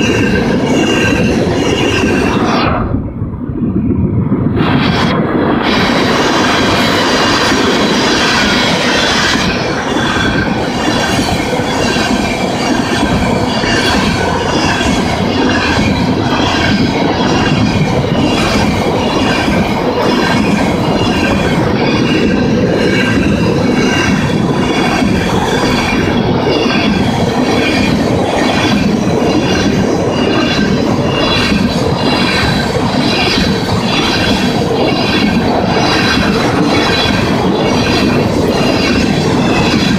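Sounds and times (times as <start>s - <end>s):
metallic wheel squeal: 0.0s - 2.7s, 5.8s - 39.9s
train wheels rumbling on rail: 0.0s - 39.9s
clatter over rail joints: 4.3s - 39.9s.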